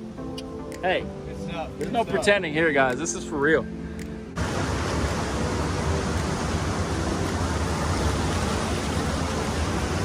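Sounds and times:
river rushing over rapids: 0:04.4 - 0:10.0.

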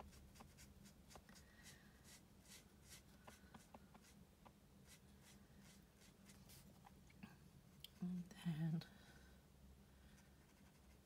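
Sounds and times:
marker scratching on cardstock: 0:00.0 - 0:01.3.

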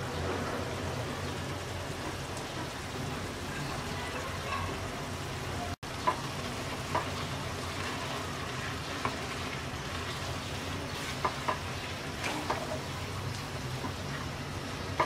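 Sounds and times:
food sizzling in a pan: 0:00.5 - 0:15.0
spatula stirring food: 0:05.8 - 0:15.0
spatula knocking on pan: 0:06.0 - 0:07.2, 0:11.1 - 0:12.8.

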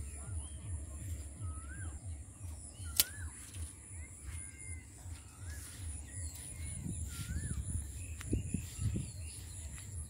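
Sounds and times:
birds whistling: 0:00.0 - 0:10.0
low thumping footsteps: 0:00.0 - 0:10.0
sharp click: 0:02.9 - 0:03.2.

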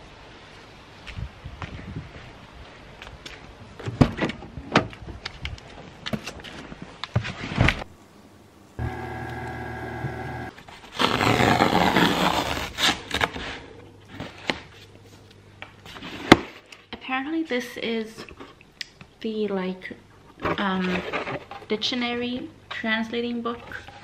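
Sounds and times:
steady hum: 0:08.8 - 0:10.5
cardboard tear strip ripping: 0:10.9 - 0:13.3.

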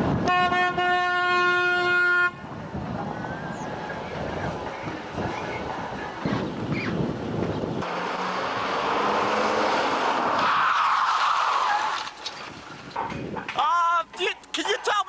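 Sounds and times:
car passing by: 0:07.8 - 0:12.1.

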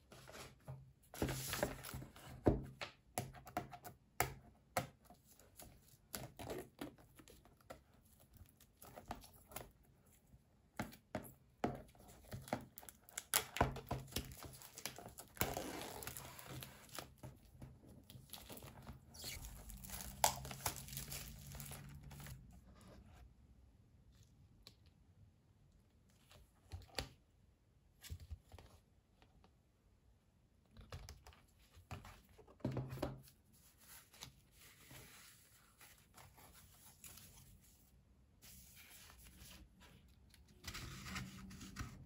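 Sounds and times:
plastic shrink-wrap tearing and crinkling: 0:14.8 - 0:16.9, 0:19.1 - 0:22.4.

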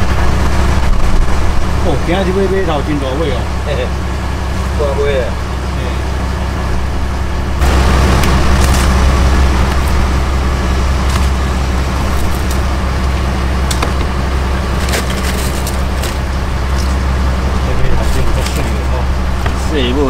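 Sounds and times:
boat engine droning: 0:00.0 - 0:20.0
clicks and knocks in cooler: 0:14.8 - 0:16.2.

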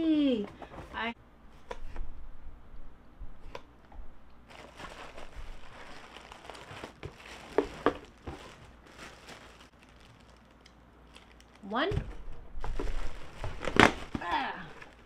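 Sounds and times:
plastic bags crinkling: 0:04.5 - 0:11.9, 0:12.6 - 0:15.0
sharp plastic crackles: 0:04.5 - 0:15.0.

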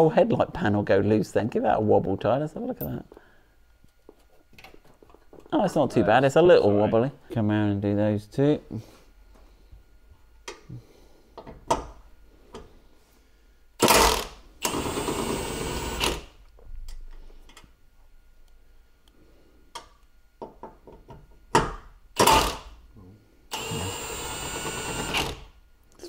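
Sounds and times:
cordless power tool running: 0:13.8 - 0:16.2, 0:23.5 - 0:25.5.

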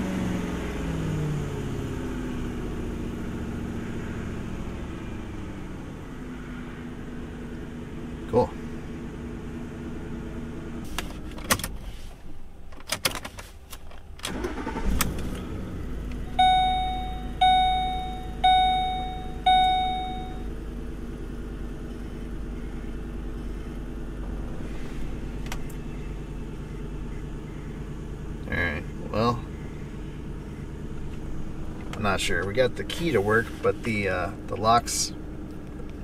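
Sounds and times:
car engine running and restarting: 0:00.0 - 0:36.0
ignition key click: 0:12.7 - 0:15.4
dashboard warning chime: 0:16.3 - 0:20.5.

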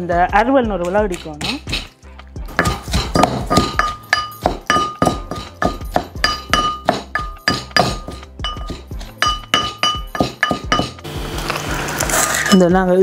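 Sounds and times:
pestle pounding in mortar: 0:00.4 - 0:11.1.

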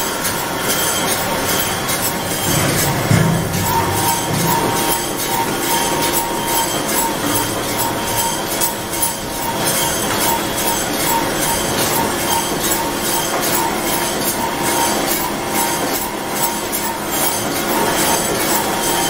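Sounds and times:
processing machinery metallic din: 0:00.0 - 0:19.0.

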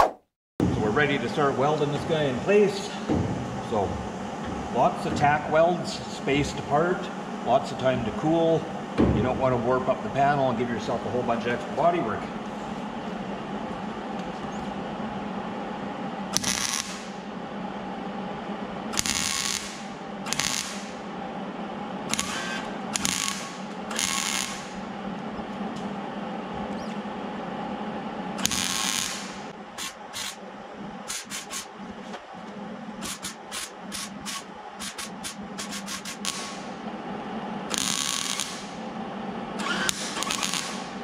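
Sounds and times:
steady background hum: 0:00.6 - 0:41.0
welding arc crackling: 0:16.3 - 0:17.2, 0:18.9 - 0:21.1, 0:22.1 - 0:24.9, 0:28.4 - 0:30.4, 0:33.0 - 0:36.8, 0:37.7 - 0:39.0, 0:39.6 - 0:41.0.

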